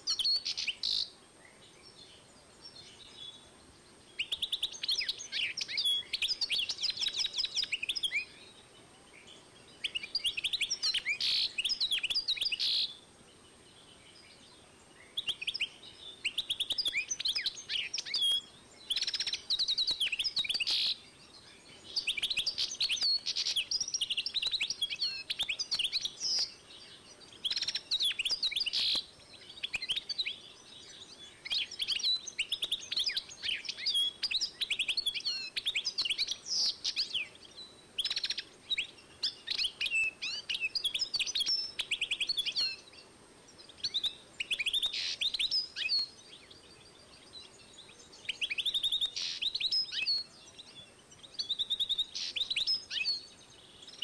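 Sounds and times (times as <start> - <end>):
finch singing twittering trills: 43.6 - 54.0.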